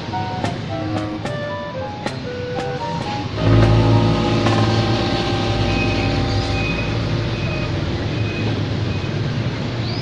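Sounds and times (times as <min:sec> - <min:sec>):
scooters and motorcycles riding past: 0:03.4 - 0:08.6
faint high beeps: 0:03.4 - 0:09.1.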